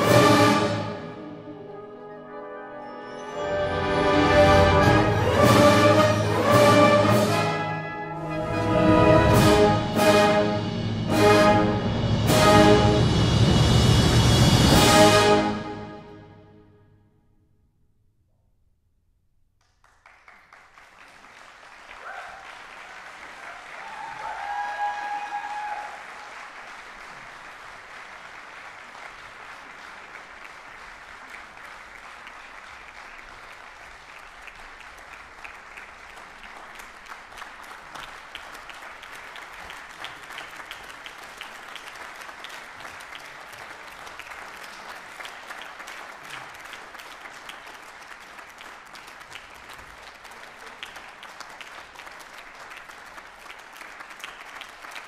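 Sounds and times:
audience applauding: 19.6s - 55.0s
loud shout: 22.0s - 22.6s, 23.5s - 26.1s.

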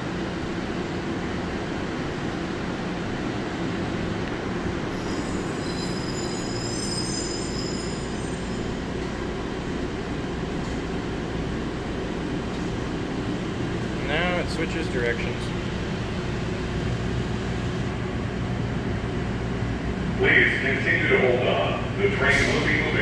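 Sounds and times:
train rumble and rush: 0.0s - 23.0s
high squeal: 4.9s - 8.8s.

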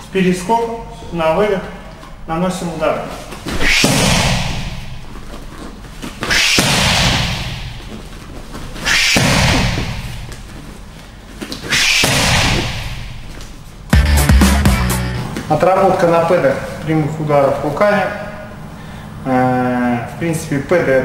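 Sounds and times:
kicks smacking on pads: 3.5s - 5.0s, 6.4s - 8.0s, 8.9s - 10.4s, 12.0s - 13.3s.

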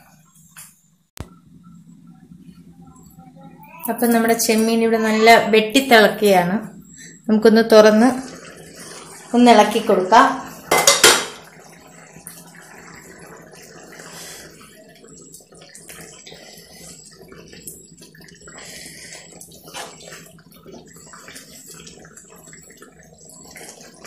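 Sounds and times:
curry bubbling: 2.4s - 24.0s
spatula stirring and knocking pan: 10.6s - 11.6s.

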